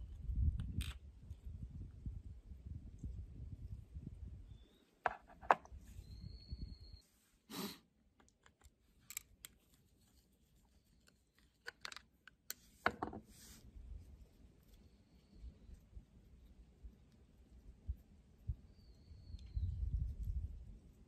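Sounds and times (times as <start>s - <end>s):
light clicks and metallic taps: 8.2s - 9.8s.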